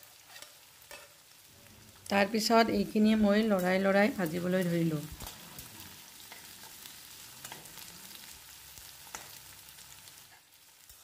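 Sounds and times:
vegetables sizzling in oil: 0.0 - 11.0
metal spatula clicking on pan: 9.1 - 9.4.

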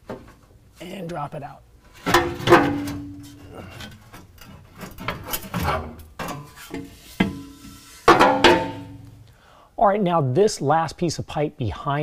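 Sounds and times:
metal rubbing and scraping: 1.9 - 9.1.

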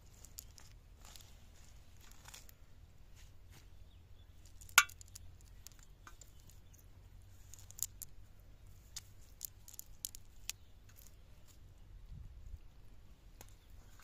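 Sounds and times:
sharp clink: 4.8 - 5.1.

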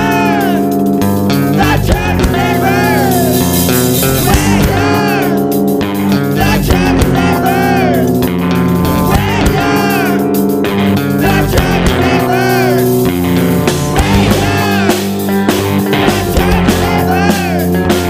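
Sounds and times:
bending lead guitar line: 0.0 - 18.0
loud rock music: 0.0 - 18.0.

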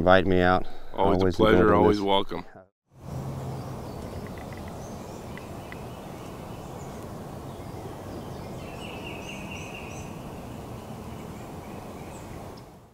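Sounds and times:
outdoor background rush: 2.9 - 12.9
small birds chirping: 3.0 - 12.9.

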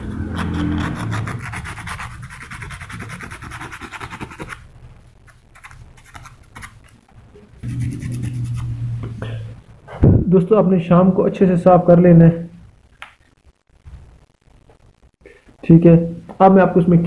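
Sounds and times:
low steady hum: 0.0 - 3.7, 4.3 - 17.0
emery cloth rubbing metal: 7.6 - 9.0.

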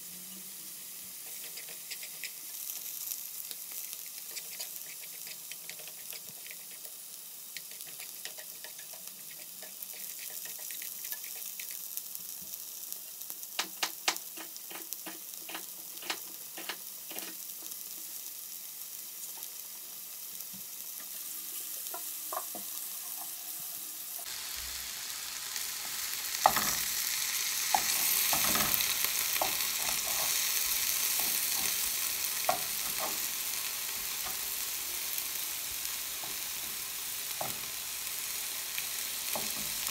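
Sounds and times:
vegetables sizzling in a frying pan: 0.0 - 39.9
utensils clicking against pan: 1.2 - 2.8, 3.9 - 7.0, 7.6 - 11.8, 13.6 - 17.4, 27.7 - 33.3.

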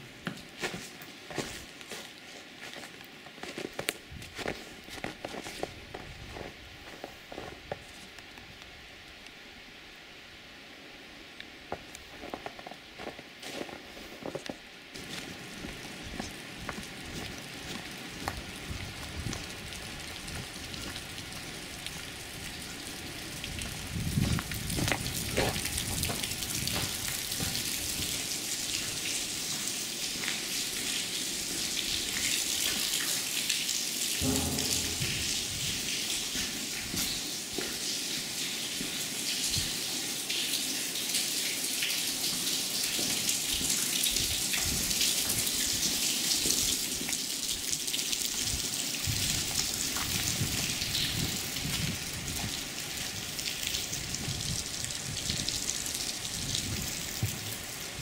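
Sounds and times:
water dripping: 15.0 - 57.8.

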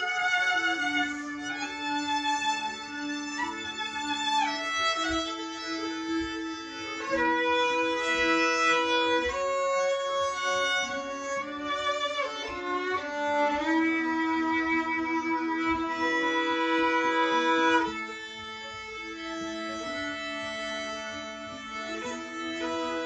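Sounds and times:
looped violin held low note: 0.0 - 23.0
slow bowed violin melody: 0.0 - 23.0.

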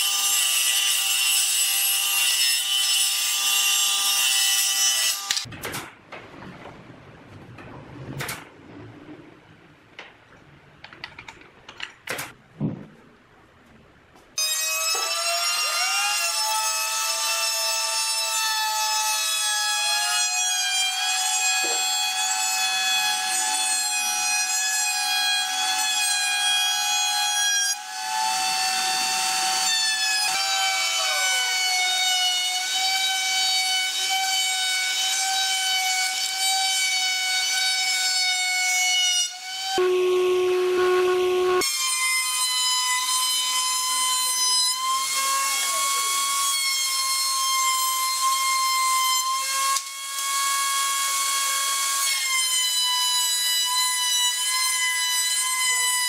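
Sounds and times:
router whining cutting wood: 27.8 - 35.4, 44.8 - 52.1.

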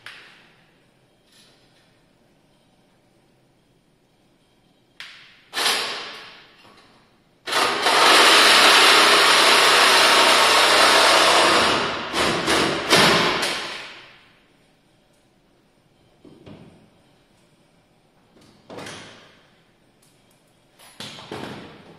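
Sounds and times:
handheld power tool cutting: 7.5 - 13.1.

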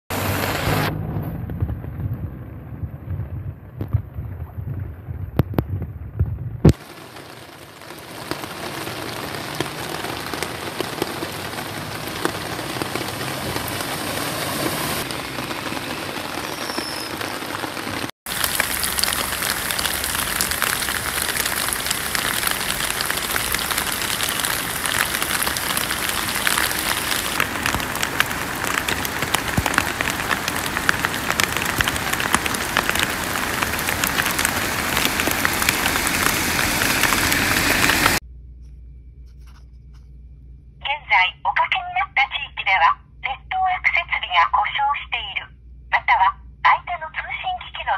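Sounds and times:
torrential rain on a flooded road: 0.2 - 1.0, 6.7 - 38.2.

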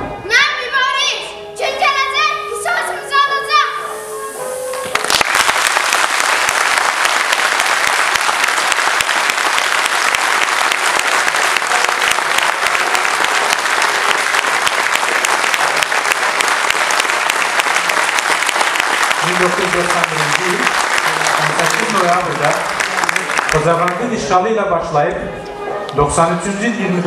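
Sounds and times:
audience clapping: 4.7 - 24.2.

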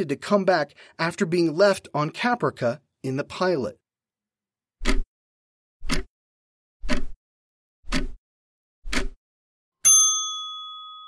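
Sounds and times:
timer ticking: 5.8 - 6.1, 7.9 - 8.2, 8.9 - 9.2
bell ding: 9.8 - 11.0.

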